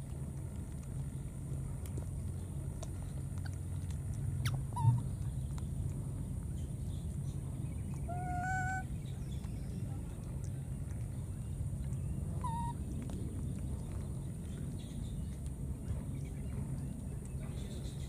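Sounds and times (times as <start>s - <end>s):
low background rumble: 0.0s - 18.0s
baby monkey coo calls: 4.4s - 5.2s, 8.0s - 8.9s, 12.4s - 12.8s.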